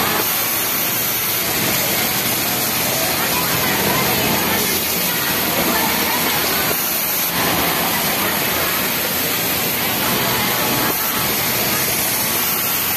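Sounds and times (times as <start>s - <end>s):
factory floor hiss: 0.0s - 12.9s
sewing machine running: 0.0s - 12.9s.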